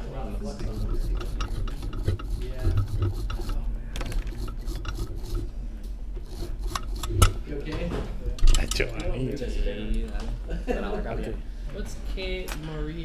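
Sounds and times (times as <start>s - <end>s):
small tools scraping and clicking: 0.6s - 5.5s, 6.2s - 7.4s.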